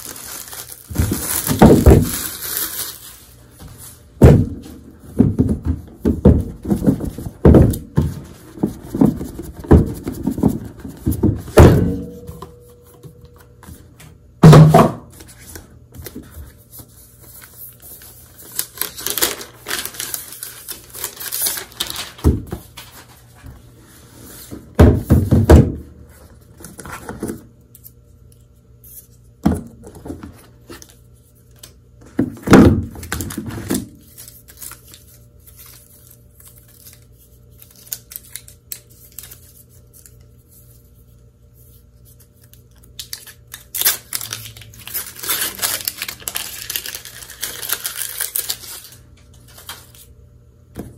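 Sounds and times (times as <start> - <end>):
packaging rustling: 0.0 - 3.9, 16.0 - 23.3, 42.4 - 50.1.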